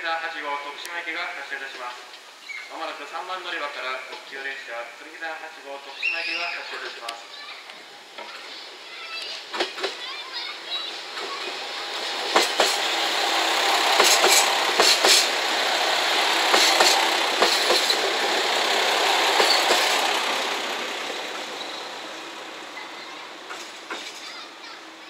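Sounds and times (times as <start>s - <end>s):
train engines rumbling: 0.6s - 25.0s
wheels clicking over rail joints: 6.8s - 24.8s.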